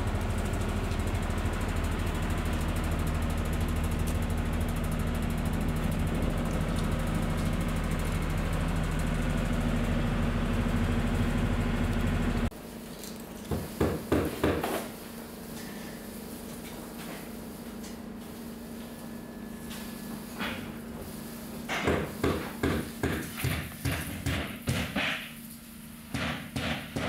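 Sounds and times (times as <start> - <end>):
insulation blowing machine drone: 0.0 - 12.5.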